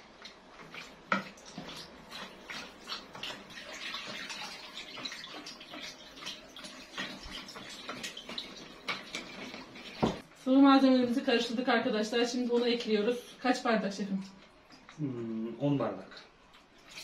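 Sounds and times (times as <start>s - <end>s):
liquid sloshing in a bowl: 0.2s - 10.2s, 16.5s - 17.0s.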